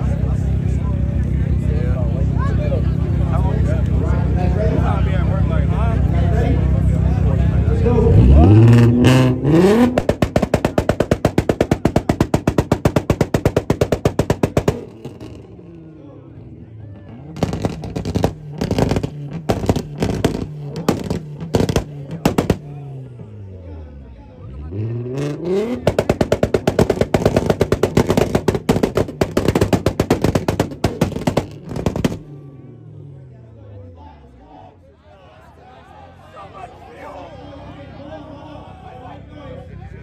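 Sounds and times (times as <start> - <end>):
engine rev limiter popping: 8.0 - 16.0, 17.0 - 23.3, 24.6 - 32.7.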